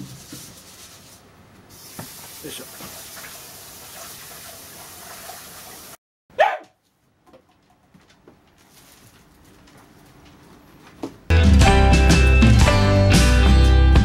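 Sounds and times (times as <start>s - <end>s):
dog barking: 6.3s - 6.8s.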